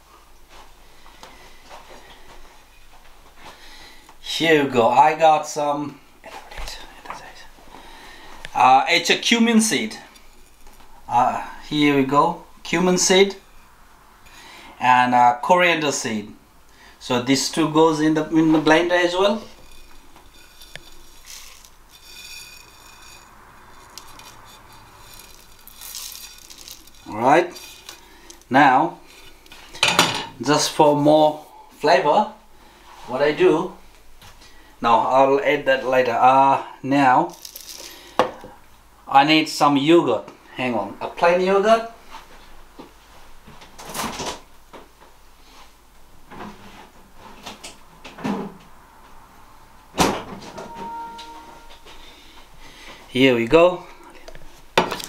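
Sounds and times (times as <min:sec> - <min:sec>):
seeds pouring rustle: 0:18.6 - 0:29.7, 0:37.3 - 0:38.2
seeds rattling into blender jar: 0:18.6 - 0:29.7, 0:37.3 - 0:38.4.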